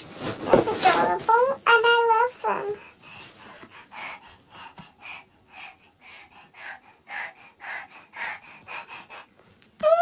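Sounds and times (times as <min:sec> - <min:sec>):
breathy puffs of breath: 0:02.8 - 0:09.4.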